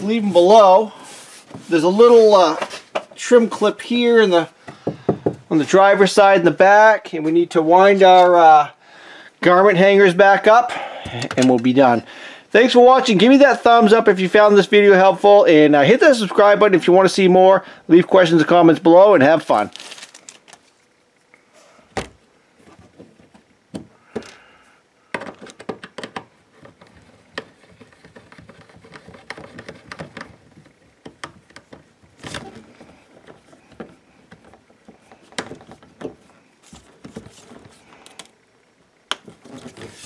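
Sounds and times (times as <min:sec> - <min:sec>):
soft rubbing: 0:00.2 - 0:02.9.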